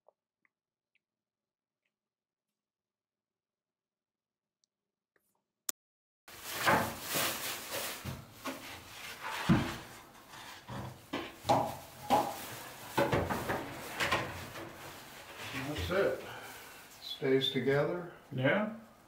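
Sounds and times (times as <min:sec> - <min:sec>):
plastic bag rubbing: 0:06.3 - 0:16.9.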